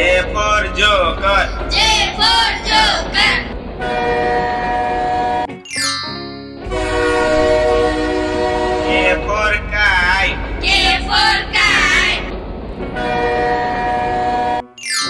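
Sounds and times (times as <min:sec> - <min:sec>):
low rumble: 0:00.0 - 0:05.5, 0:06.6 - 0:14.6
train horn: 0:00.0 - 0:05.5, 0:06.6 - 0:12.3, 0:13.0 - 0:14.8
high sliding voice: 0:08.9 - 0:12.3.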